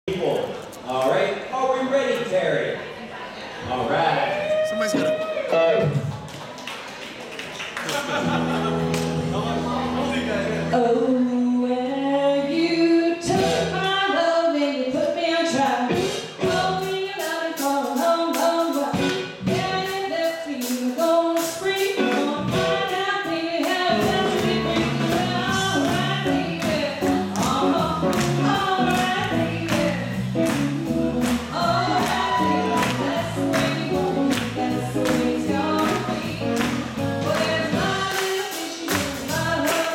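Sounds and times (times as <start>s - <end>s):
swing band playing: 4.5s - 6.0s, 8.1s - 11.0s, 13.2s - 14.0s, 15.5s - 39.9s
woman singing: 10.7s - 39.9s.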